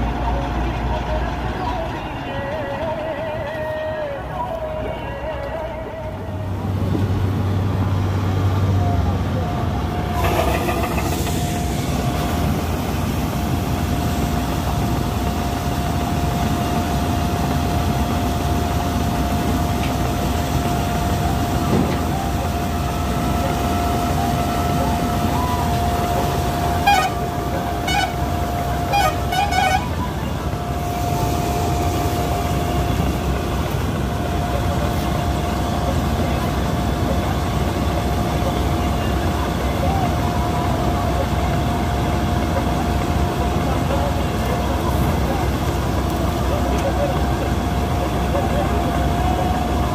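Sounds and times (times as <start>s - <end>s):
combine harvester engine: 0.0s - 49.9s
high whine: 9.7s - 47.1s.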